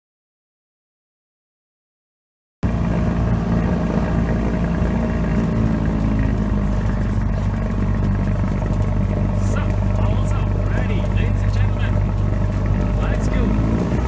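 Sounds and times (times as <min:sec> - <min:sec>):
propeller aircraft engine running: 0:02.6 - 0:14.0.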